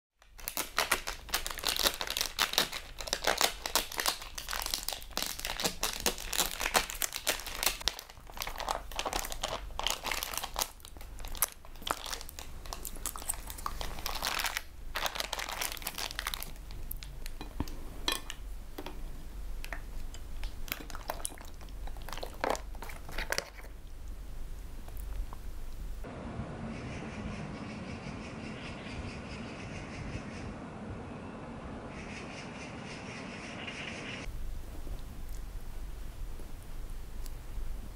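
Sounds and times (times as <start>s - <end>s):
plastic bag crinkling: 0.2s - 17.8s, 20.3s - 23.8s.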